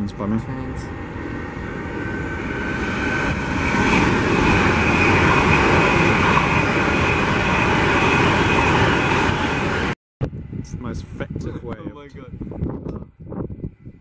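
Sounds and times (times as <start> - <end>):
high-speed train passing: 0.0 - 11.7.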